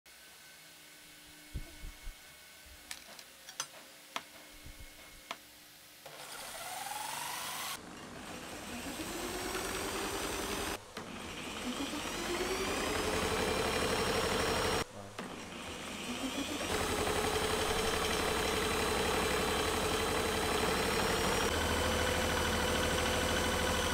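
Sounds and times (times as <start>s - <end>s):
electric rotary tool running: 6.1s - 23.9s.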